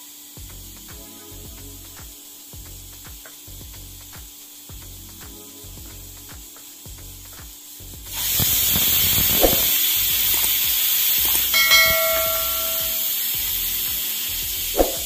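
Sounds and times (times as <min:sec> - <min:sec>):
pressure cooker steam hissing: 0:00.0 - 0:15.0
bell-like ding: 0:11.5 - 0:13.1.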